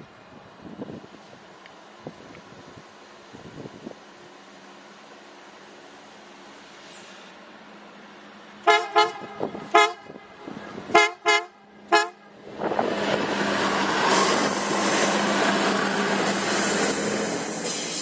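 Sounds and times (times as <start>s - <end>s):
wheels rumbling on rails: 0.0s - 18.0s
train horn toots: 8.6s - 12.3s.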